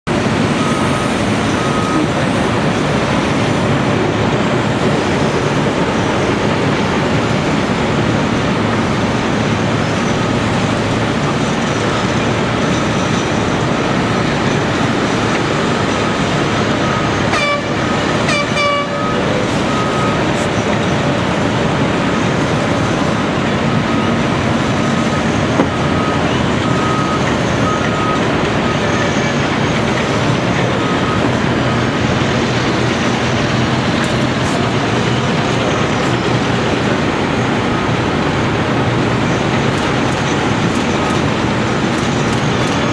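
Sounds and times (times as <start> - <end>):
excavator diesel engine: 0.0 - 42.9
heavy machinery din: 0.1 - 42.9
horn toot: 17.3 - 19.1.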